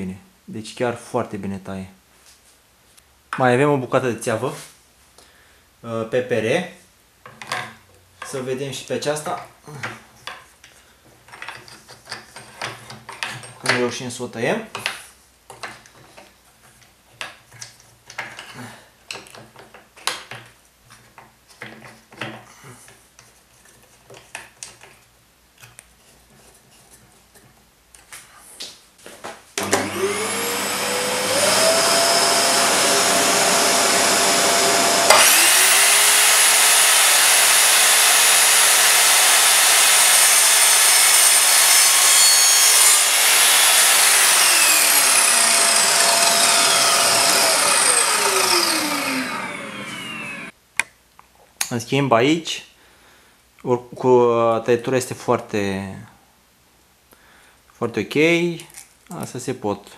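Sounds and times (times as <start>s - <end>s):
mitre saw motor whine: 29.6s - 50.5s
saw blade cutting plastic pipe: 29.6s - 50.5s.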